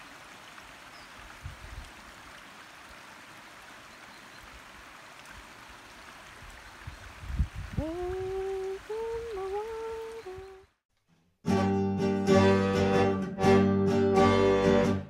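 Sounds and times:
stream babbling over stones: 0.0 - 10.4.

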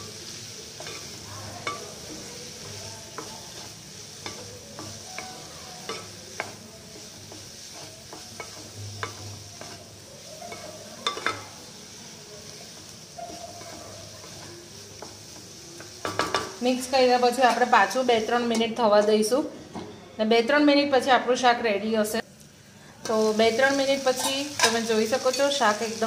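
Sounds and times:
vegetables sizzling in a pan: 0.0 - 19.7, 20.4 - 26.0
spatula scraping a pan: 0.8 - 11.6.

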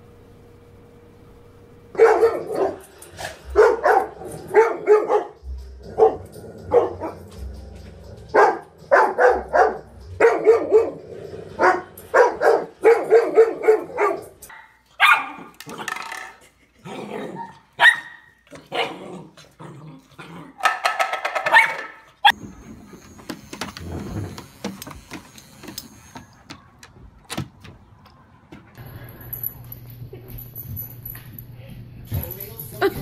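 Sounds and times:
low steady hum: 0.0 - 8.4
dogs barking excitedly: 1.9 - 7.4, 8.2 - 16.0, 17.2 - 19.4, 20.5 - 22.4.

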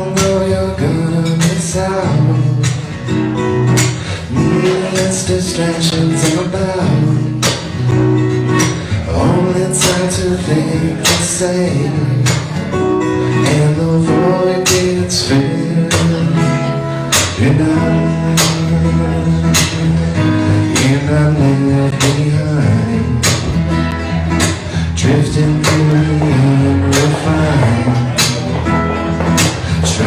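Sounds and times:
acoustic guitar: 0.0 - 30.0
man singing: 0.0 - 30.0.

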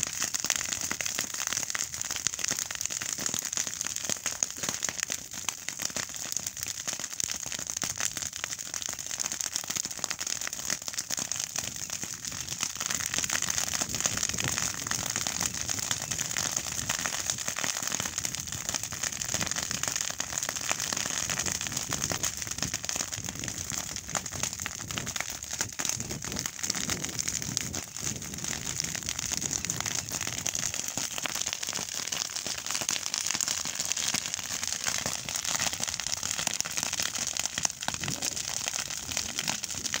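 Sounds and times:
grass burning and crackling: 0.0 - 40.0.

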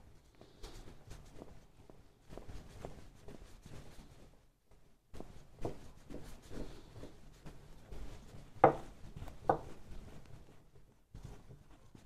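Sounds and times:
roller rubbing over skin: 0.0 - 12.0
sharp wooden knocks: 8.6 - 9.7.

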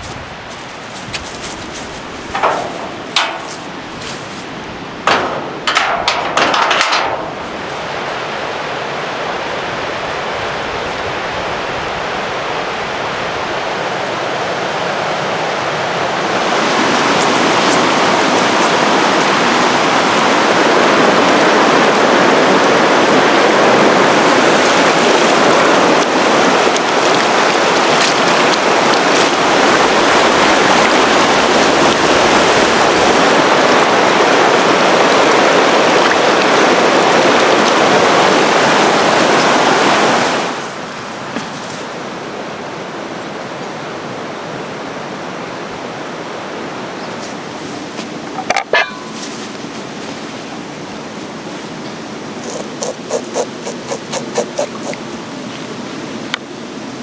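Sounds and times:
sharp knocks and rustles: 0.0 - 7.8
stream rushing over stones: 0.0 - 57.0.

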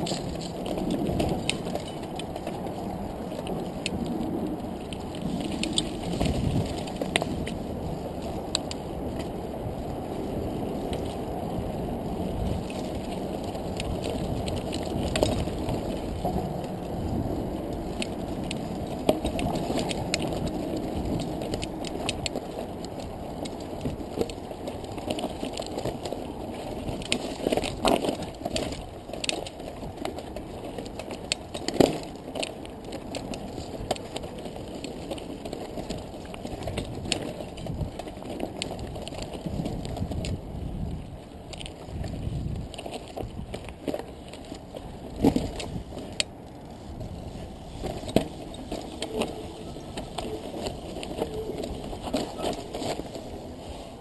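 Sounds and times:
bike clicks and rattles: 0.0 - 54.0
bike tyres rumbling over rock: 0.0 - 54.0
bike knocking on rocks: 5.0 - 7.6.

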